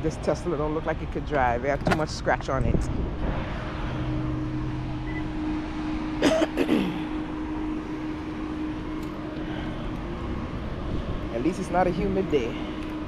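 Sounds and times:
low traffic rumble: 0.0s - 13.0s
steady mechanical hum: 0.0s - 13.0s
person coughing or grunting: 6.2s - 7.1s.

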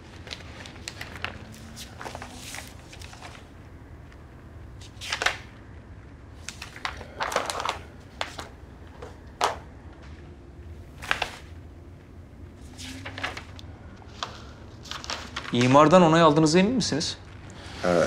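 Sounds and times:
paper pages rustling: 0.0s - 4.2s, 4.8s - 5.5s, 6.4s - 10.2s, 10.8s - 16.3s.

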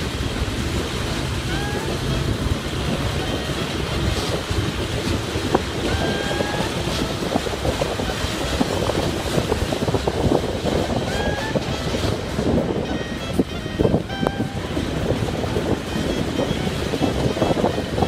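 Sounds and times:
train rumble: 0.0s - 18.0s
wind on microphone: 0.0s - 18.0s.

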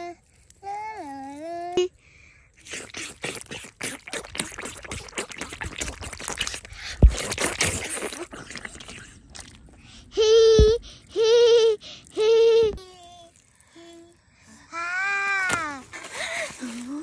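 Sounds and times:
hands scrubbing wet face: 2.6s - 9.7s
water splashing and dripping: 2.6s - 13.6s.

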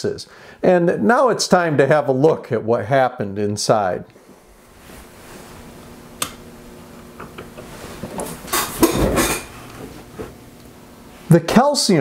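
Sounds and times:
faint steady hum: 0.0s - 12.0s
rustling and shuffling: 4.3s - 5.8s, 7.6s - 10.4s.

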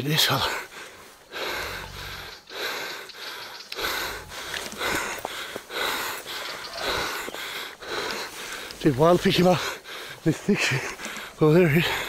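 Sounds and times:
person panting heavily: 0.2s - 12.0s.

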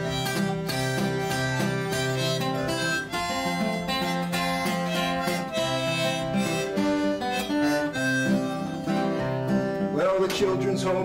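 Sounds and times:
acoustic guitar accompaniment: 0.0s - 11.0s
harmonica melody: 0.0s - 11.0s.

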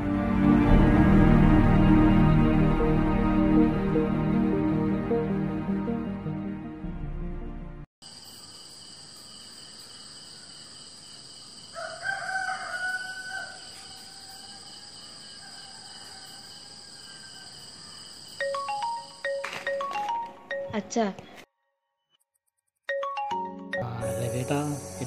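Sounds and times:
high drone of insects: 8.0s - 19.3s, 23.8s - 25.0s
rooster crowing: 11.6s - 18.0s
chiming mallet notes: 18.4s - 20.9s, 22.9s - 24.6s.

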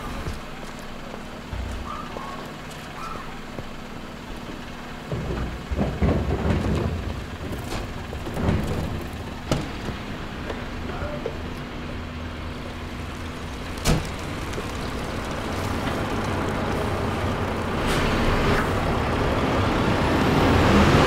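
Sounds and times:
diesel engine idling: 0.0s - 21.0s
wheeled bin rattling over floor: 5.0s - 10.1s.

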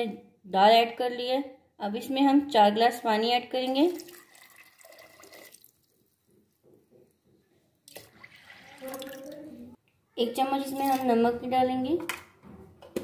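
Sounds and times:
water pouring into a pot: 3.7s - 5.9s, 7.9s - 9.4s.

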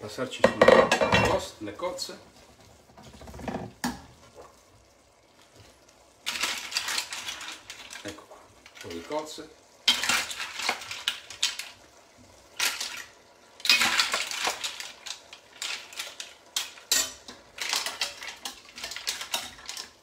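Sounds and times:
metal utensils scraping steel pans: 9.9s - 11.7s, 12.6s - 20.0s.

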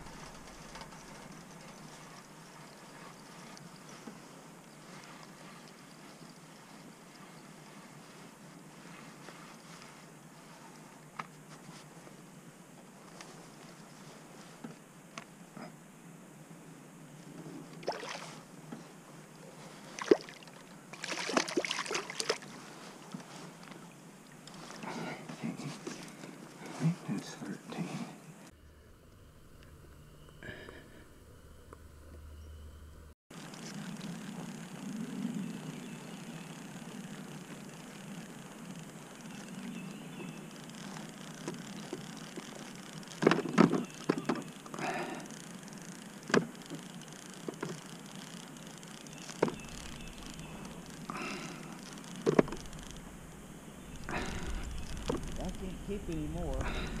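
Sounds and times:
faint steady hiss: 0.0s - 57.0s
fish splashing at water surface: 20.0s - 22.5s.

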